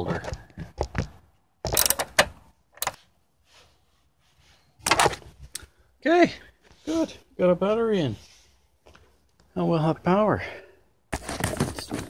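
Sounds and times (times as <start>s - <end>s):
metal clicks: 1.6s - 3.0s.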